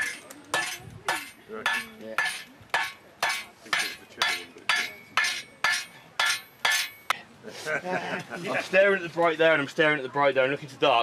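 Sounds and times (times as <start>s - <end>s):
hammer ringing on anvil: 0.0s - 7.2s.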